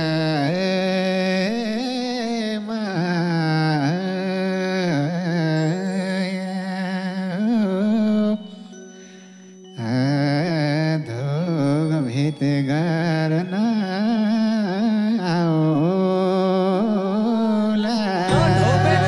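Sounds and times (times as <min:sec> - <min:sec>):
man singing into a microphone: 0:00.0 - 0:08.6, 0:09.8 - 0:19.0
held keyboard note: 0:18.0 - 0:19.0.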